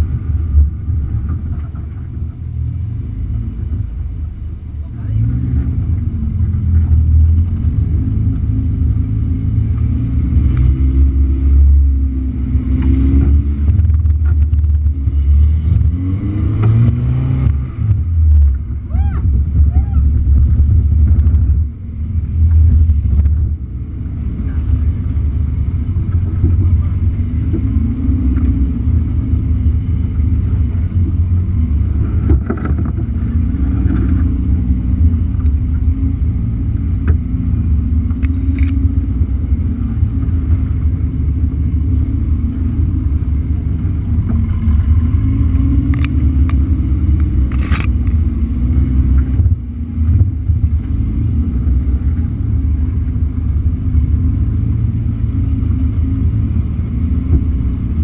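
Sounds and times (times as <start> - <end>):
car engine running at low revs: 0.0 - 58.0.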